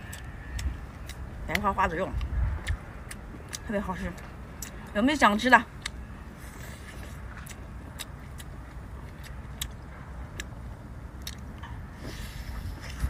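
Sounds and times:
person chewing: 0:00.0 - 0:01.6, 0:02.2 - 0:03.6, 0:05.8 - 0:13.0
steady low rumble: 0:00.0 - 0:13.0
mouth clicks and lip smacks: 0:11.2 - 0:11.8.

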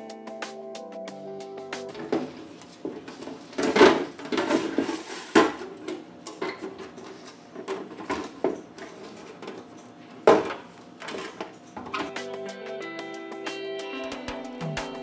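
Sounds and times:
plastic drawer clattering: 0:03.0 - 0:07.0.

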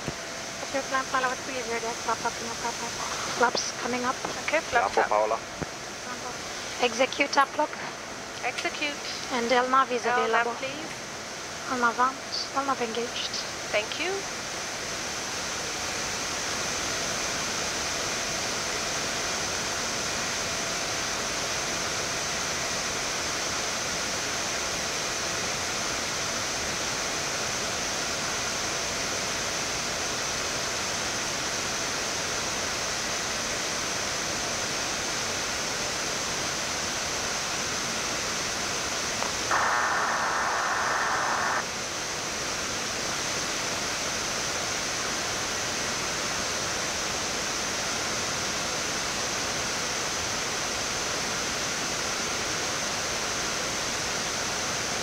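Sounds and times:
rushing air noise in cockpit: 0:00.0 - 0:12.7, 0:29.7 - 0:47.7
faint high whine: 0:00.0 - 0:21.9, 0:33.5 - 0:47.0
burst of radio-like noise: 0:00.7 - 0:05.4, 0:39.2 - 0:41.7.

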